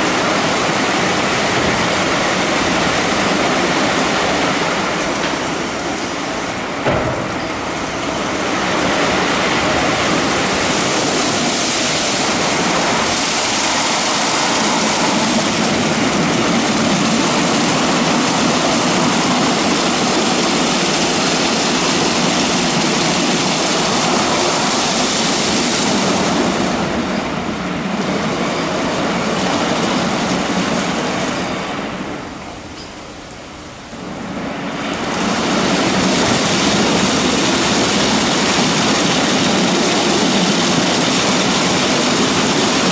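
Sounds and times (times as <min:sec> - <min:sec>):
car wash brushes and spray: 0:00.0 - 0:31.2.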